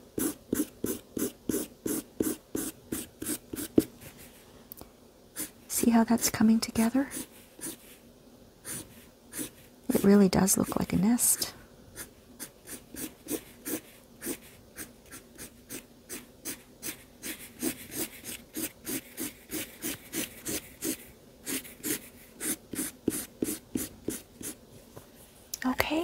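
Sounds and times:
marker scribbling on paper: 0.2 - 3.9, 5.4 - 5.9, 6.8 - 7.9, 8.6 - 10.9, 12.0 - 24.6.

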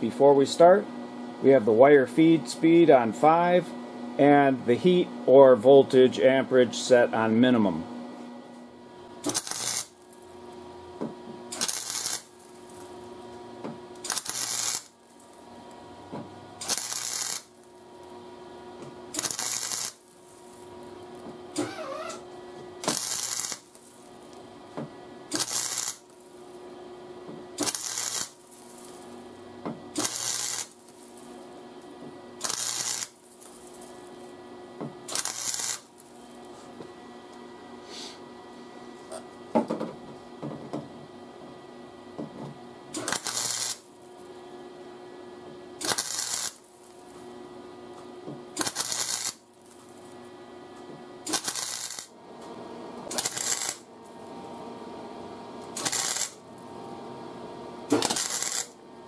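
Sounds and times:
welder hum: 0.0 - 39.3, 42.2 - 59.0
welding arc bursts: 9.2 - 10.3, 11.5 - 12.9, 14.0 - 15.4, 16.6 - 17.8, 19.1 - 20.7, 22.8 - 24.0, 25.3 - 26.3, 27.6 - 29.2, 29.9 - 31.4, 32.4 - 34.1, 35.0 - 36.1, 42.9 - 43.9, 45.8 - 47.0, 48.6 - 49.5, 51.2 - 52.1, 53.1 - 53.9, 55.8 - 56.4, 57.9 - 58.8.

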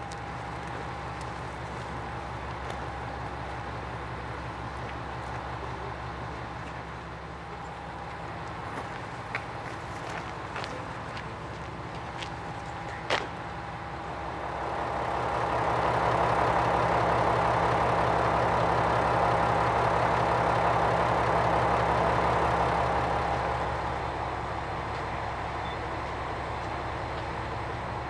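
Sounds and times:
constant whine: 0.0 - 28.0
railcar diesel engine: 0.0 - 28.0.

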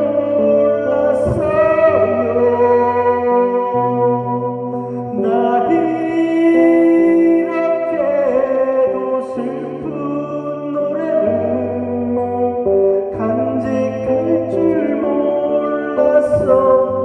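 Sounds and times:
accompanying music: 0.0 - 17.0
electric guitar: 0.0 - 17.0
man singing: 0.0 - 17.0.

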